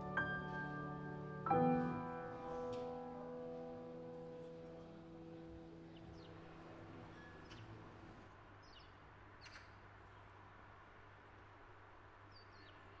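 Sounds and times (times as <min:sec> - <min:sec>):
grand piano notes: 0:00.0 - 0:06.4.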